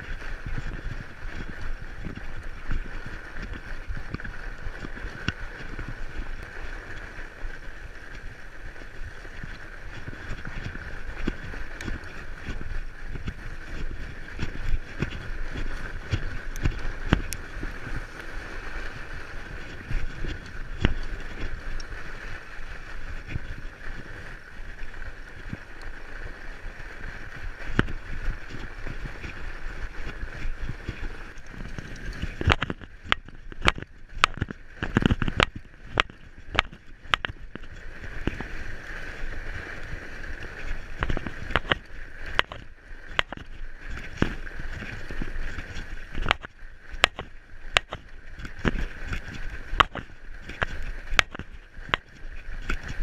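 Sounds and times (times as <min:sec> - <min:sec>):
fat tyres rolling on snow: 0:00.0 - 0:53.0
bike clicks and rattles: 0:09.2 - 0:18.9, 0:27.6 - 0:38.6, 0:39.7 - 0:53.0.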